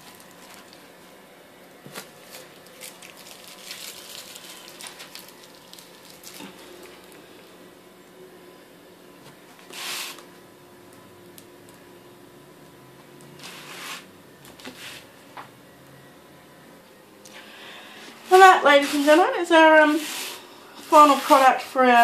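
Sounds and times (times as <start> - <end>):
plastic piping bag rustling: 0.0 - 0.9, 1.8 - 7.2
faint steady hum: 0.0 - 22.0.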